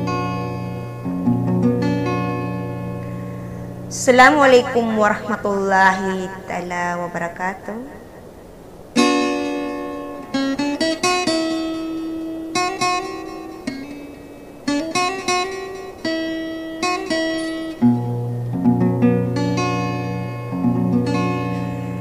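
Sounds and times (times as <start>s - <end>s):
plucked strings music: 0.0s - 5.3s, 8.9s - 22.0s.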